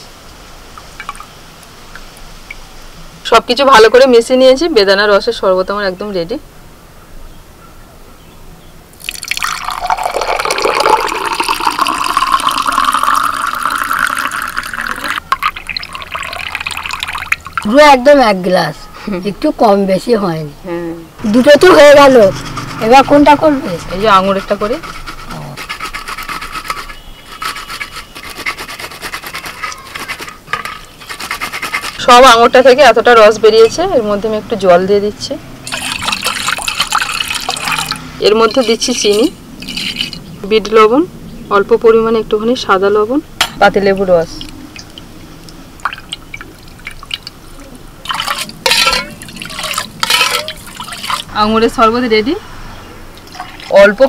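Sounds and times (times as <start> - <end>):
juice splashing into bowl: 9.0 - 17.7, 35.6 - 38.6, 44.3 - 51.3
liquid dripping: 9.0 - 17.8, 35.6 - 40.3, 43.7 - 51.3, 53.1 - 54.0
grapes scraping on metal grater: 21.6 - 32.6, 35.7 - 40.3, 48.1 - 51.3.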